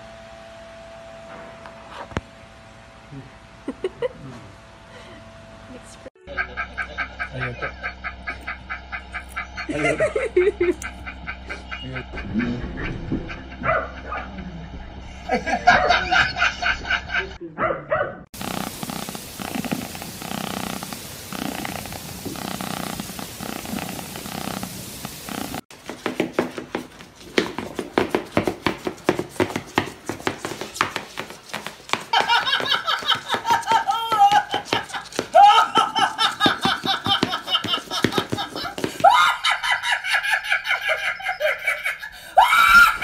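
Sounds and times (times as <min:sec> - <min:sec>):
woman laughing hard: 0:03.6 - 0:04.4, 0:06.2 - 0:14.4, 0:15.2 - 0:17.4, 0:31.9 - 0:43.0
cat purring: 0:18.4 - 0:25.6.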